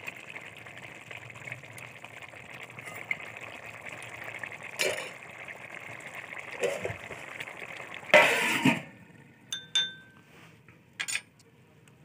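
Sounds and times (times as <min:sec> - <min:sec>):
metal lid scraping on pot: 0:08.2 - 0:08.9.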